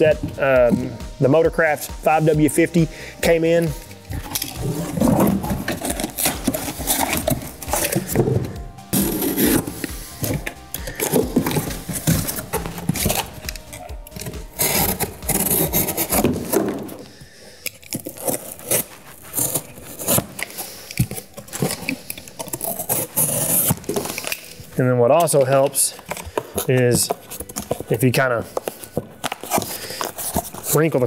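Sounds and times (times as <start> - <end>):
cardboard ripping: 4.0 - 17.2, 17.9 - 24.8, 25.4 - 31.0
utility knife sawing cardboard: 4.6 - 13.4, 14.3 - 17.0, 21.5 - 24.3.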